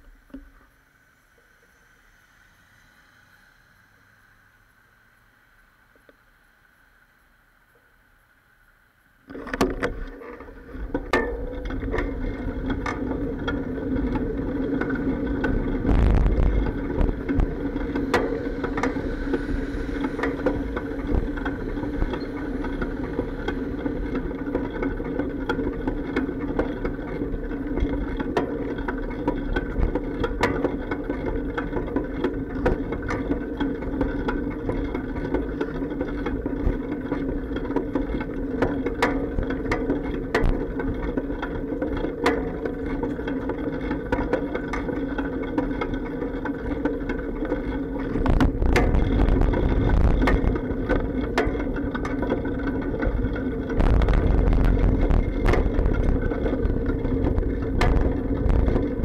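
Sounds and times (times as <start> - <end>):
bicycle riding rumble: 0.0 - 59.0
bike clacks and bumps: 20.1 - 59.0.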